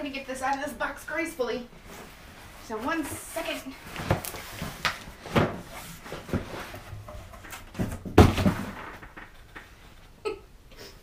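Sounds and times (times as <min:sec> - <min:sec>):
cardboard boxes scraping: 0:01.9 - 0:08.7
box thumping onto table: 0:07.7 - 0:09.3.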